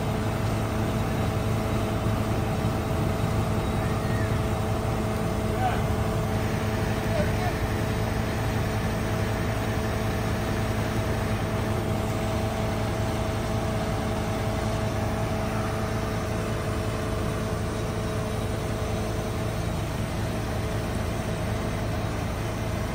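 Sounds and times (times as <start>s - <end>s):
truck engine idling: 0.0s - 22.9s
faint high whine: 0.4s - 8.5s, 12.0s - 19.4s.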